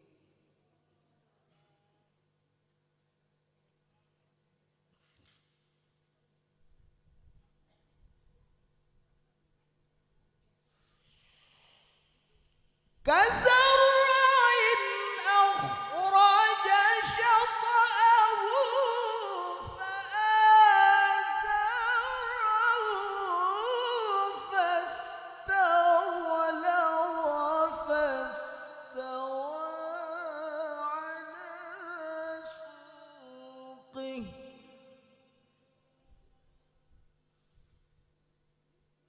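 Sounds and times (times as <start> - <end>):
man reciting melodically: 13.0 - 35.2.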